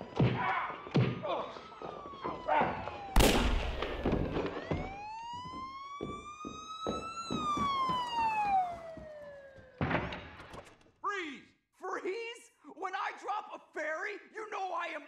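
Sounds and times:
police siren wail: 0:00.0 - 0:10.1.

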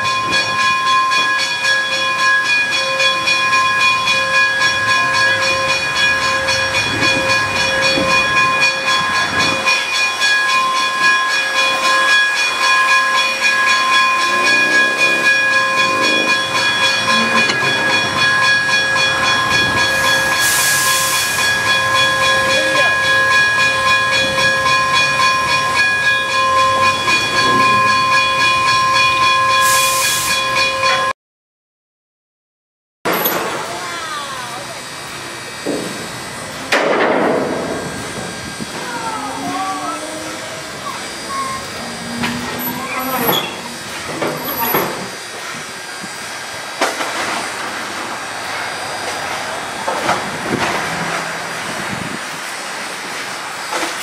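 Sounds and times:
steam hissing: 0:04.7 - 0:28.8, 0:29.4 - 0:30.6, 0:33.5 - 0:54.0
loud steam hisses: 0:15.8 - 0:25.6, 0:29.4 - 0:30.6, 0:33.5 - 0:54.0
high-pitched whine: 0:33.2 - 0:53.8.

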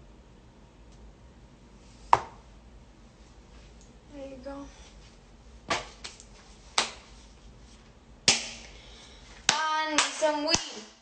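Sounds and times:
sharp hand claps: 0:06.8 - 0:07.0, 0:09.5 - 0:10.9.

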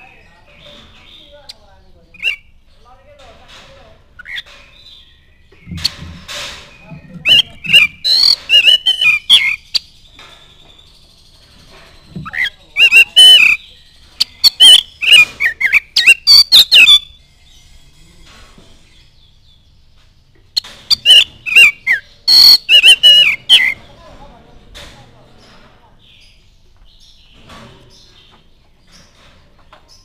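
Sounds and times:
bird singing whistles: 0:06.8 - 0:09.9, 0:12.2 - 0:17.2, 0:20.9 - 0:23.8.

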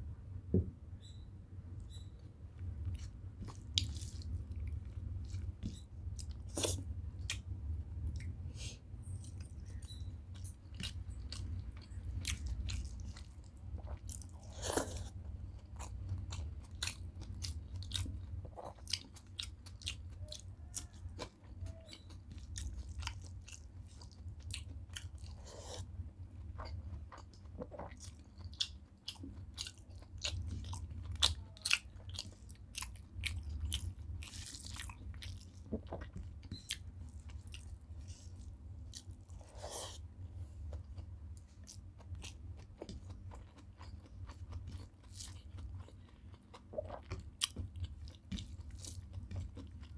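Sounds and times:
steady low hum: 0:00.0 - 0:49.9
person chewing food: 0:02.6 - 0:08.4, 0:09.1 - 0:49.9.

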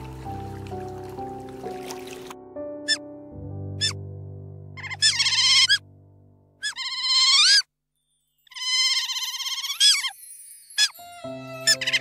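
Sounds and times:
background music: 0:00.0 - 0:06.7, 0:10.2 - 0:12.0
otters squealing: 0:04.8 - 0:05.8, 0:06.6 - 0:07.7, 0:08.5 - 0:10.2, 0:11.6 - 0:12.0.

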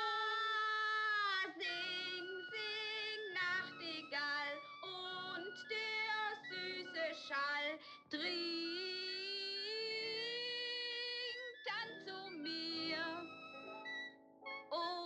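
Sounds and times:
woman singing off-key: 0:00.0 - 0:13.3, 0:14.7 - 0:15.0
piano: 0:00.0 - 0:15.0
flute: 0:11.0 - 0:14.8.

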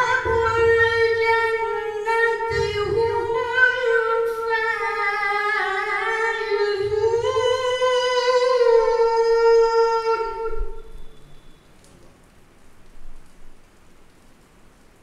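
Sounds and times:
man chanting melodically: 0:00.0 - 0:11.4.

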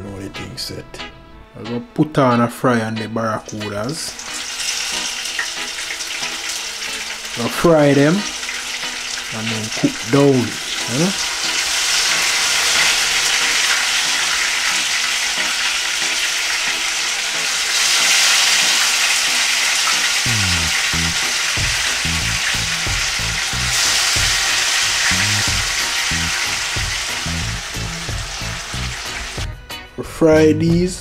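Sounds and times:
fish sizzling in hot oil: 0:04.1 - 0:29.5
background music with bass beat: 0:20.2 - 0:29.9.

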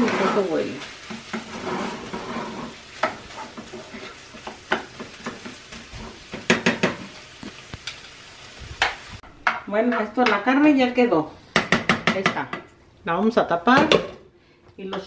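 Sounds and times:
spoon stirring and scraping: 0:00.0 - 0:08.2
meat sizzling in a frying pan: 0:00.0 - 0:10.5.

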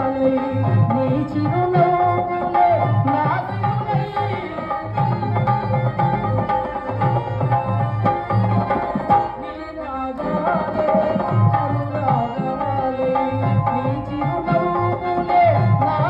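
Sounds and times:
tabla drum strokes: 0:00.0 - 0:09.6
harmonium notes: 0:00.0 - 0:16.0.

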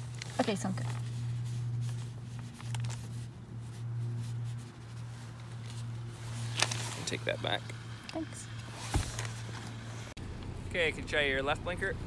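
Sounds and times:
paper rustling: 0:00.0 - 0:07.2.

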